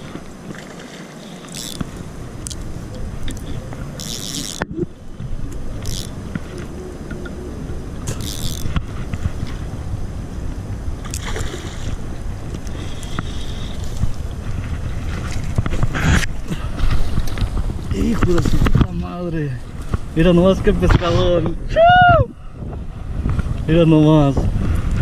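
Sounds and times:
rod and reel rustling: 0.0s - 4.8s, 5.4s - 6.8s, 8.0s - 9.8s, 11.0s - 19.0s
wind rumbling on microphone: 0.0s - 25.0s.

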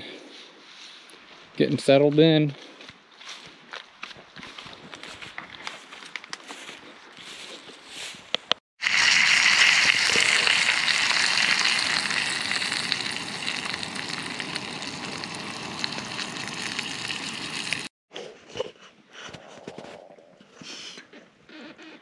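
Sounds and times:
fish sizzling in hot oil: 8.8s - 17.9s.

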